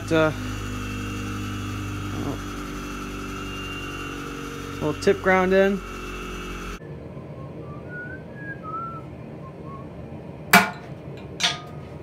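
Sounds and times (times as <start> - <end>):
faint whistling: 6.8 - 10.0
hammer striking hot steel on anvil: 10.5 - 11.8.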